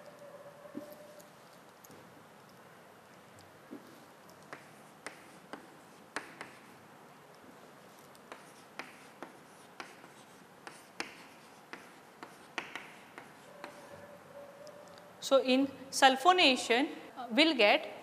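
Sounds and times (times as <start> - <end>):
chalk writing on chalkboard: 3.9 - 6.8, 7.5 - 14.8.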